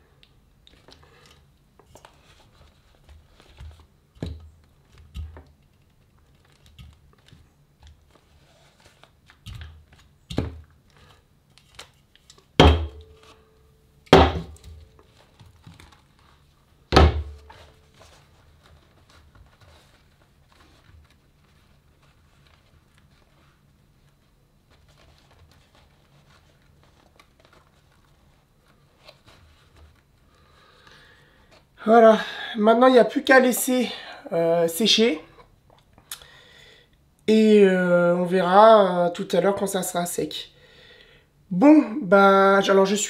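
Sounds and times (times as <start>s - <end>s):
vinyl crinkling: 0.6s - 13.6s, 14.4s - 31.8s
cans knocking on table: 12.6s - 13.1s, 14.2s - 14.6s
loud knocks: 12.6s - 13.1s, 14.2s - 14.6s, 17.0s - 17.5s.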